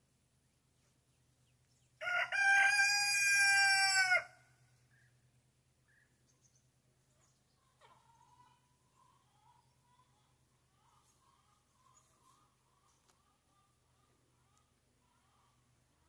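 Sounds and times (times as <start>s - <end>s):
rooster crowing: 2.0s - 4.4s.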